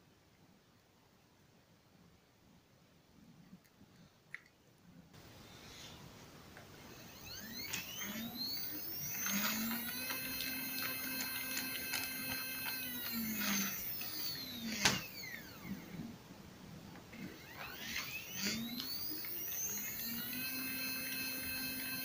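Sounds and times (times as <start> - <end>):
stepper motor whine: 6.8 - 16.2, 17.0 - 22.0.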